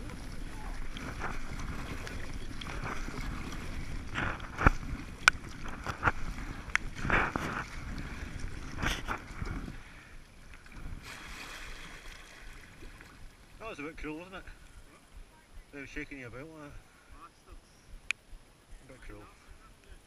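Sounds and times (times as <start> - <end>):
paddle strokes splashing: 0.0 - 15.2
water slapping against hull: 0.0 - 15.7
wind buffeting microphone: 0.0 - 15.8.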